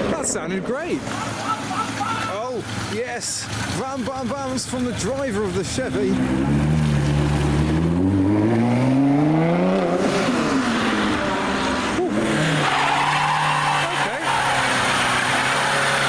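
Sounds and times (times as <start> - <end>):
car engine revving: 0.0 - 16.0
engine running steadily: 0.7 - 6.8.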